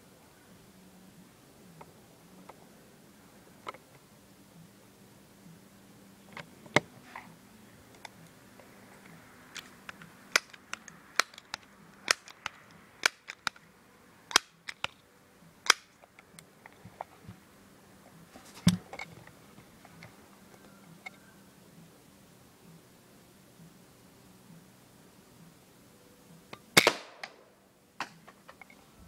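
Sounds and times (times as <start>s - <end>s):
air pistol mechanical clicks: 9.5s - 13.6s, 14.3s - 15.0s, 15.6s - 16.8s.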